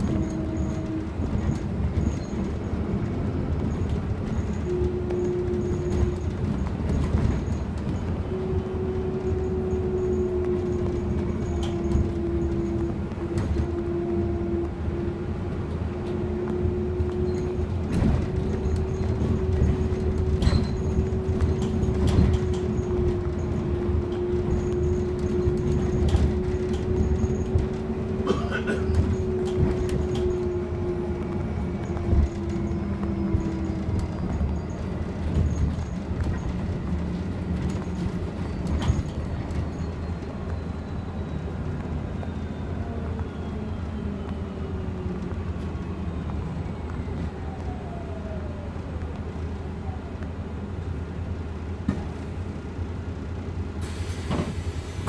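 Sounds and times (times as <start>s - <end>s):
bus cabin rumble: 0.0s - 55.0s
rattles and knocks: 17.2s - 30.6s.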